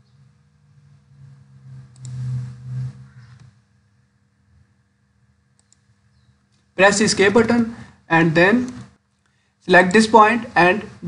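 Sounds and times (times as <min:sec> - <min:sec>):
faint clicks: 0:01.8 - 0:02.2, 0:05.5 - 0:05.9.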